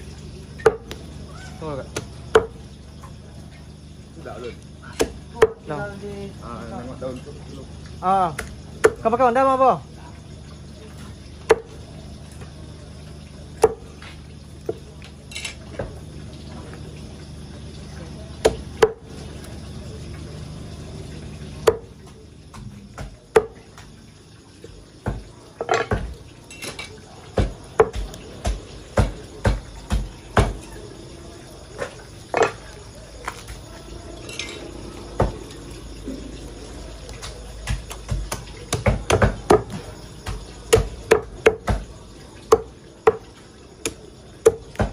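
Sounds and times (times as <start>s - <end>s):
cleaver chopping meat and bone: 0.6s - 1.0s, 1.9s - 2.6s, 4.9s - 5.7s, 8.3s - 9.1s, 11.4s - 11.8s, 13.6s - 13.9s, 18.4s - 19.1s, 21.6s - 21.9s, 22.5s - 23.9s, 25.0s - 26.2s, 27.3s - 30.6s, 37.2s - 43.2s, 43.8s - 44.9s.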